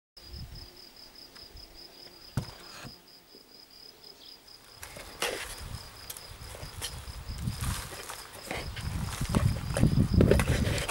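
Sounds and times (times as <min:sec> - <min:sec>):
cricket chirping trill: 0:00.2 - 0:10.7
hands rustling seedlings: 0:04.7 - 0:10.9.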